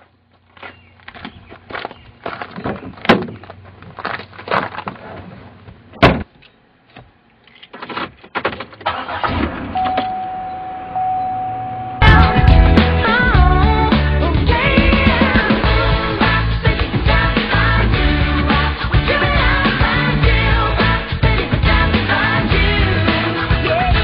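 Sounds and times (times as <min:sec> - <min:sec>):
clicks rattles and knocks: 0:07.4 - 0:08.9
steady high tone: 0:09.8 - 0:16.3.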